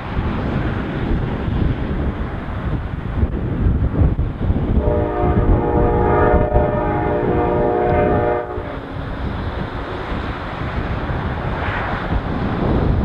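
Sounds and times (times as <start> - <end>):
wind buffeting microphone: 0.0 - 13.0
locomotive air horn chord: 4.8 - 8.9.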